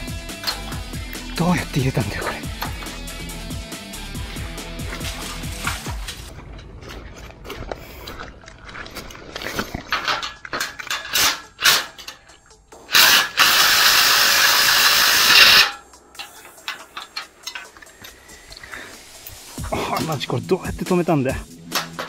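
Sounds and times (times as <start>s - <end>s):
knocks and clinks: 9.4s - 12.6s, 15.5s - 18.3s.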